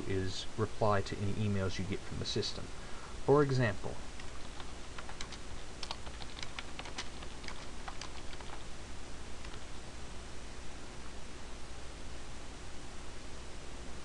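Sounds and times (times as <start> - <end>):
computer keyboard typing: 4.2 - 8.7, 9.4 - 9.8.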